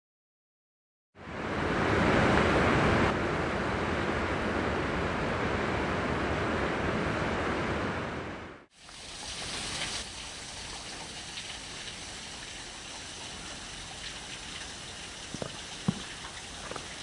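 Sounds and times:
steady outdoor rushing noise: 1.2s - 8.7s.

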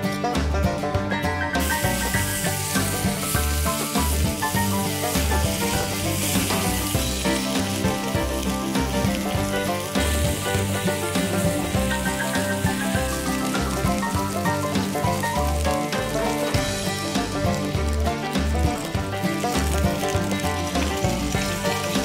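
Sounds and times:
background music: 0.0s - 22.0s
burger patty sizzling in pan: 1.6s - 22.0s.

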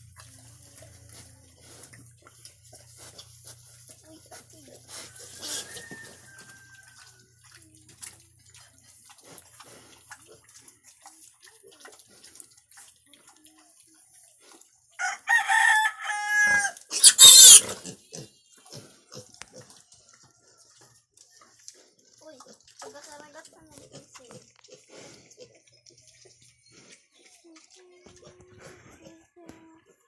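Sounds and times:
rooster crowing: 5.2s - 7.2s, 15.0s - 16.8s.

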